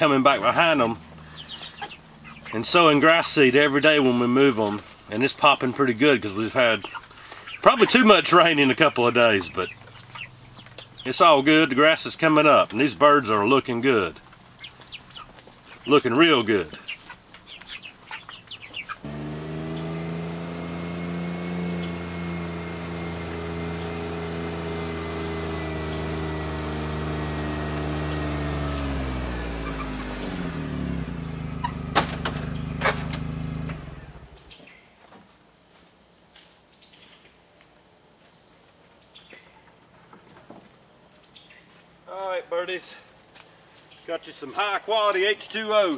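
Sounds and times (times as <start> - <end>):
utility vehicle engine running: 0.4 - 3.4, 17.6 - 34.5.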